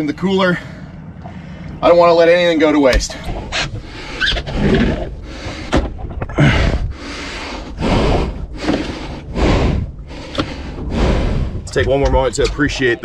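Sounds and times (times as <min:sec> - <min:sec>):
man breathing heavily: 0:00.4 - 0:01.8, 0:03.7 - 0:11.7.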